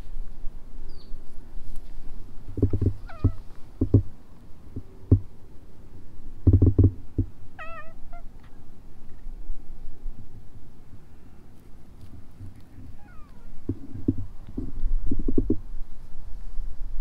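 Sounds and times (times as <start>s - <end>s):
low thumps: 2.5s - 4.1s, 4.7s - 5.3s, 6.4s - 7.4s, 13.6s - 15.7s
cat meowing: 3.0s - 3.4s, 7.6s - 8.5s, 12.9s - 13.6s.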